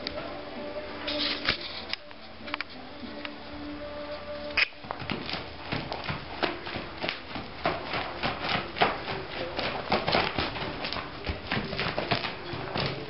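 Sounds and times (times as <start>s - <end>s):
horse hoofbeats on dirt: 4.1s - 13.0s.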